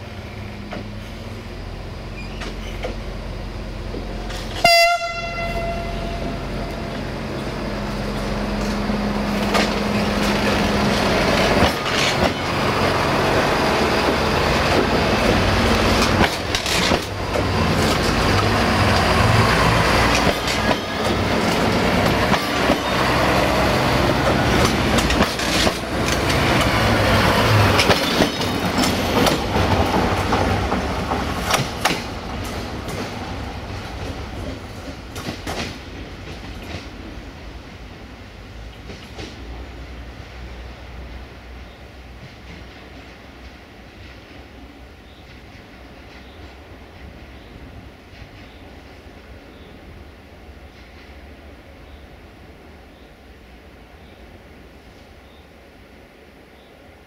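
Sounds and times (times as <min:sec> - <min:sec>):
diesel train engines passing: 0:00.0 - 0:57.0
train horn blast: 0:04.5 - 0:06.9
wheels clicking over rail joints: 0:08.2 - 0:12.8, 0:13.7 - 0:37.2.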